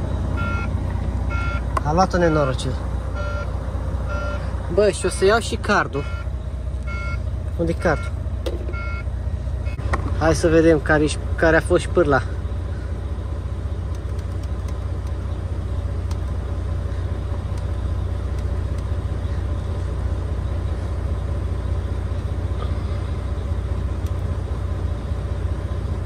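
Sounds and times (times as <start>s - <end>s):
diesel truck engine idling: 0.0s - 26.0s
faint clicks: 13.9s - 15.2s.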